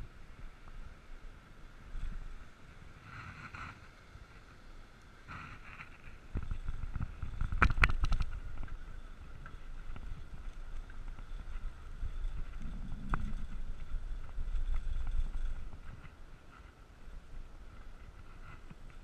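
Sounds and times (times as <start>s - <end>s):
bicycle rolling: 0.0s - 19.0s
low road rumble: 0.0s - 19.0s
wind buffeting microphone: 5.6s - 19.0s.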